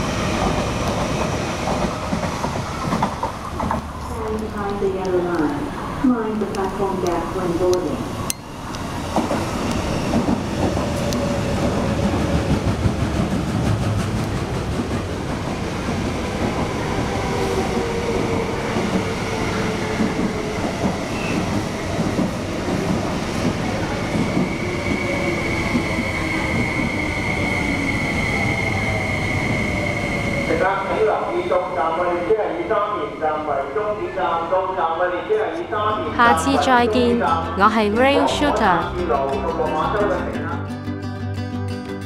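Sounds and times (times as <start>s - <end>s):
train rumble and wheel clatter: 0.0s - 40.6s
high brake squeal: 21.1s - 21.5s, 24.8s - 30.6s.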